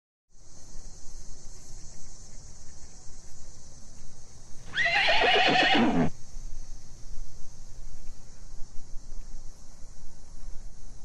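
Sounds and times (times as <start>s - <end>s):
crickets chirring: 0.3s - 11.0s
horse whinnying: 4.7s - 6.1s.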